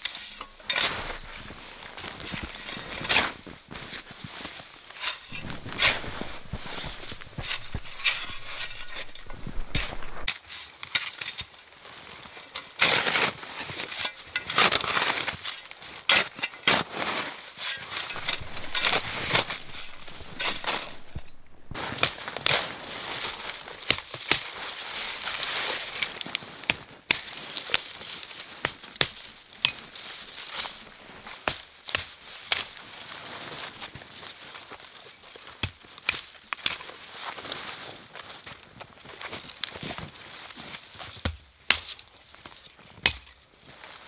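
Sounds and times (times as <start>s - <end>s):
branches crackling and snapping: 0.0s - 10.4s, 18.0s - 44.0s
snow shovel scraping snow: 0.0s - 10.7s, 16.2s - 26.0s.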